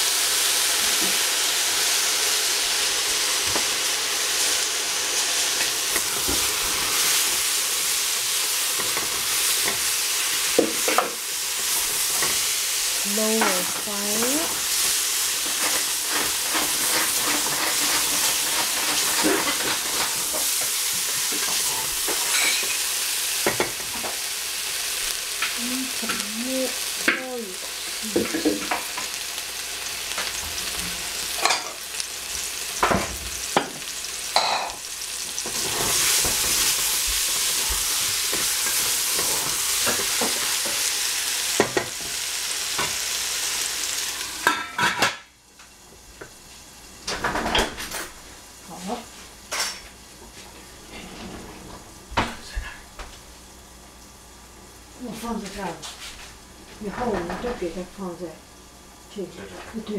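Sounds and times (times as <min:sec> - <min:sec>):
food sizzling in a pot: 0:00.0 - 0:59.9
spatula scraping a metal pot: 0:15.4 - 0:20.6.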